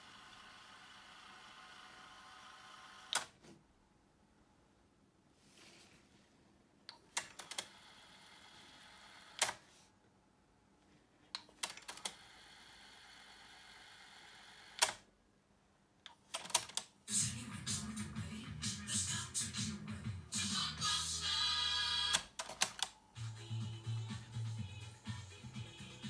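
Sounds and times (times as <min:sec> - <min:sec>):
music from tape: 0:17.1 - 0:22.3, 0:23.1 - 0:26.0.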